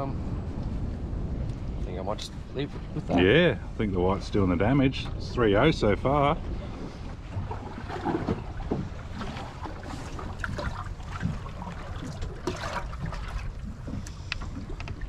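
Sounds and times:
low rumble of wind and sea: 0.0 - 15.0
small knocks and splashes: 7.1 - 15.0
water trickling and dripping: 7.4 - 15.0.

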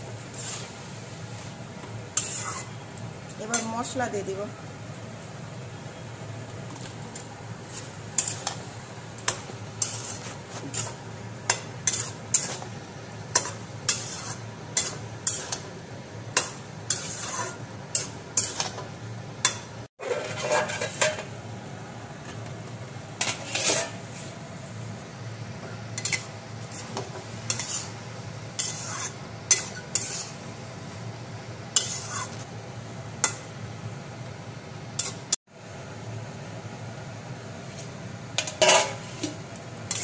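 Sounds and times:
spatula scraping metal pan: 0.2 - 0.9, 2.2 - 2.8, 9.3 - 12.7, 13.3 - 15.7, 16.3 - 18.8, 19.4 - 21.3, 23.2 - 24.3, 26.0 - 30.4, 31.8 - 32.5, 38.4 - 40.0.

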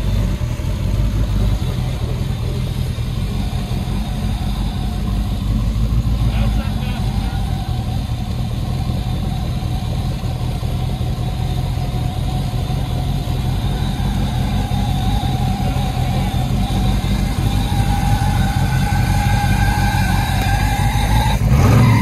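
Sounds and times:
suv engine running: 0.0 - 22.0.

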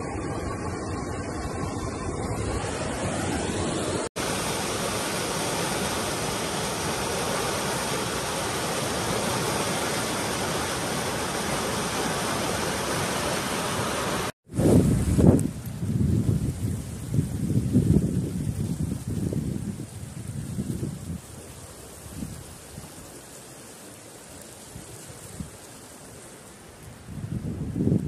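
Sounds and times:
floodwater rushing through posts: 4.2 - 14.3.

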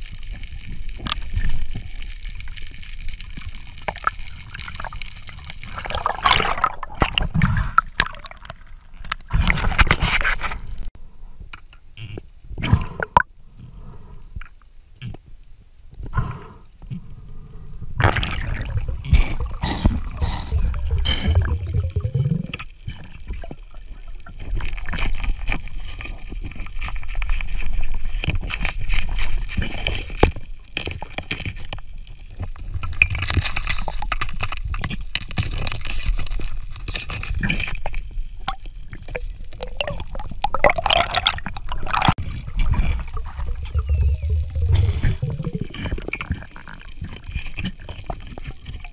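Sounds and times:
muffled underwater rumbling: 16.1 - 30.1, 36.2 - 48.9.

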